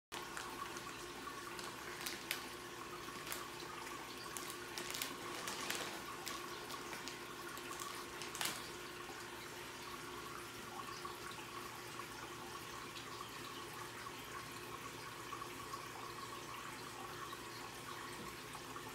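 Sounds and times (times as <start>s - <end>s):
sharp ticks and small splashes: 0.1s - 10.0s
aquarium water trickling: 0.1s - 18.9s.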